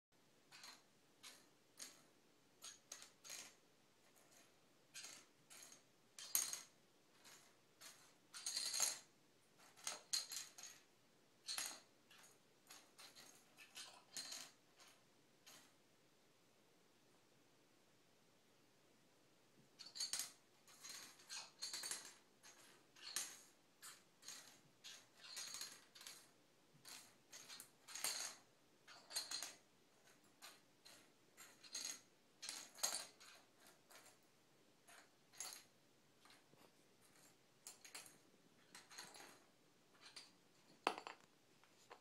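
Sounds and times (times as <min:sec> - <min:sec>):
bottle cap clattering on floor: 0:40.7 - 0:41.3.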